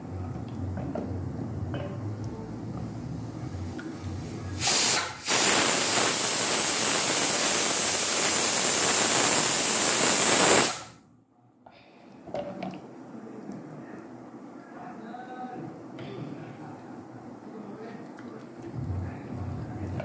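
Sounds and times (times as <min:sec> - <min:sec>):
pressure cooker whistling: 0:04.6 - 0:10.9.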